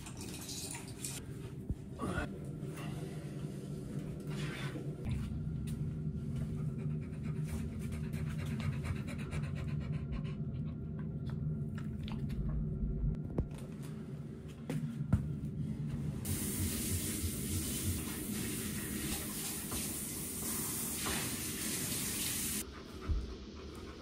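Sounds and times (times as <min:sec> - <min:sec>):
steady low hum: 0:01.2 - 0:18.2
dog panting: 0:06.4 - 0:11.2, 0:22.6 - 0:24.0.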